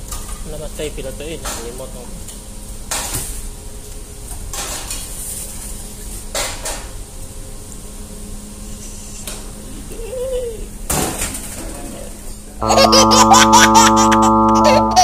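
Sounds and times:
low hum: 12.6 - 15.0.

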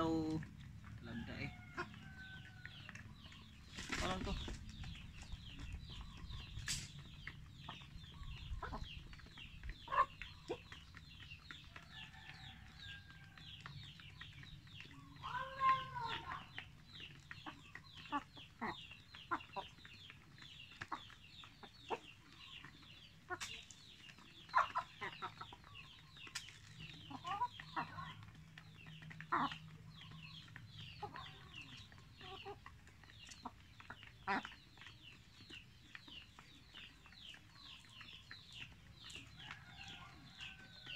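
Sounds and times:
hens clucking: 0.0 - 40.9.

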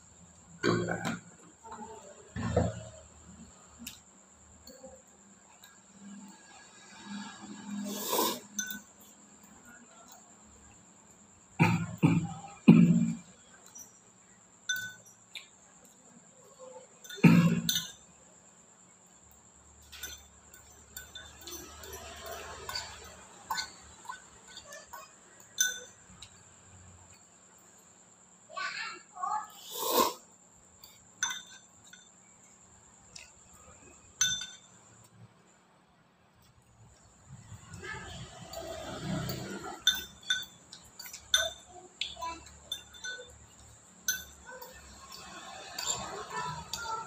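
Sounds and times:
metal spoon clinking on bowl: 8.1 - 9.2, 14.6 - 16.0, 16.9 - 18.2, 19.8 - 26.5, 30.8 - 35.1, 37.5 - 47.0
throat noise: 11.6 - 13.2.

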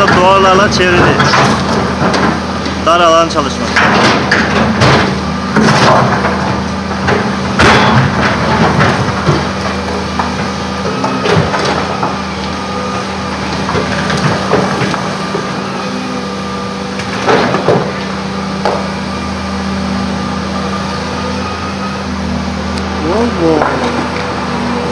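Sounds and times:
rock and earth clattering: 0.0 - 15.8
excavator diesel engine running: 0.0 - 24.9.

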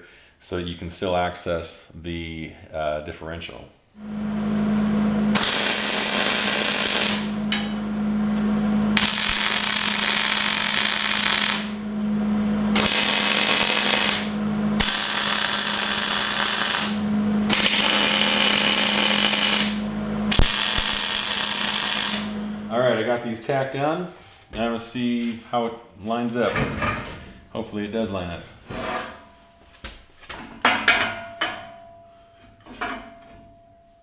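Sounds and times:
steady low hum: 3.9 - 29.8
welding arc crackle and hiss: 5.4 - 7.7, 9.0 - 11.8, 12.8 - 22.4.

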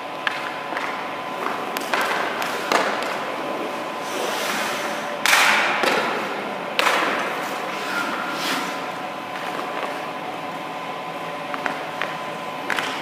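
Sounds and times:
skate blades scraping ice: 0.4 - 5.1, 7.0 - 10.0.

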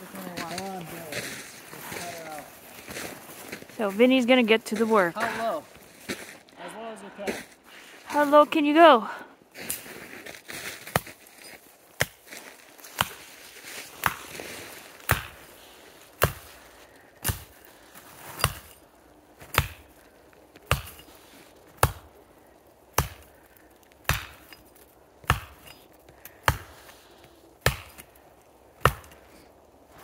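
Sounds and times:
axe chopping tree trunk: 12.9 - 13.3, 14.0 - 14.3, 15.0 - 15.5, 16.2 - 16.6, 17.2 - 17.6, 18.4 - 18.7, 19.4 - 20.0, 20.6 - 21.1, 21.7 - 22.1, 22.9 - 23.3, 24.0 - 26.9, 27.6 - 28.2, 28.8 - 29.2.

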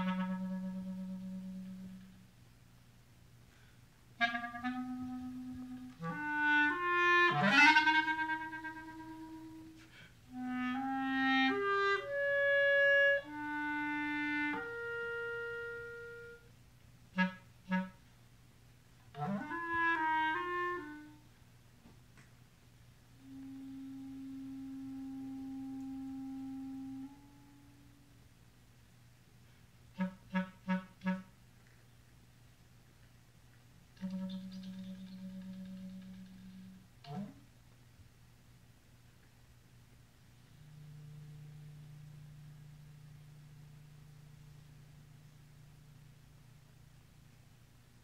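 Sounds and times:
solo clarinet playing: 0.0 - 2.3, 3.6 - 18.1, 19.1 - 21.3, 23.2 - 28.1, 29.9 - 31.4, 34.0 - 37.5, 40.4 - 46.7.

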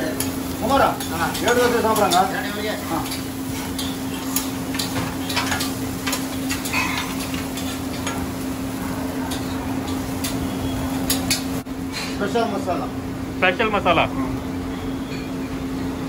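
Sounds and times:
utensils and dishes clinking: 0.0 - 11.6
food sizzling: 0.0 - 11.7.

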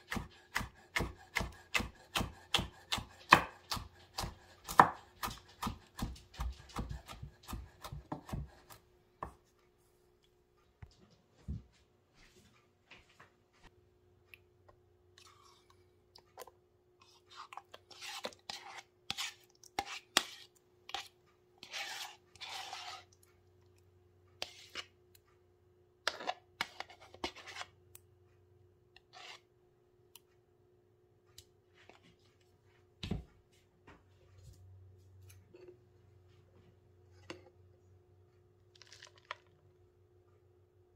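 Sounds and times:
spoon scraping plastic bowl: 15.2 - 23.3, 24.4 - 25.0, 26.0 - 27.8.

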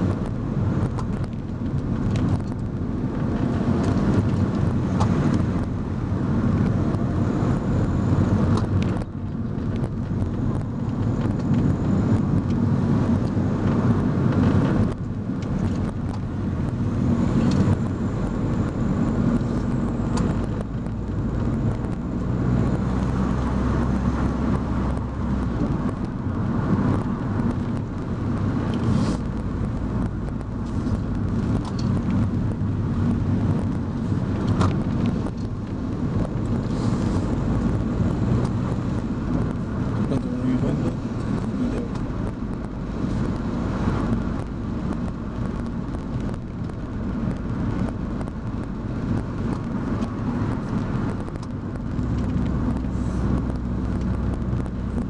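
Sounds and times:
car engine hum: 0.0 - 55.0
road noise: 0.0 - 55.0.

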